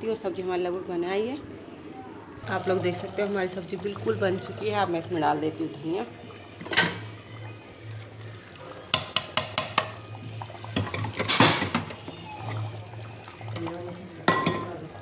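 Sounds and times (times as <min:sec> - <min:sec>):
metal spoon clinking on pot: 0:14.3 - 0:14.8.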